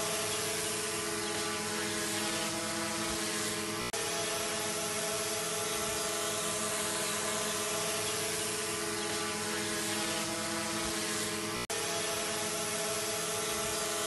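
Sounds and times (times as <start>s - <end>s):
drone propellers whining: 0.0s - 14.0s.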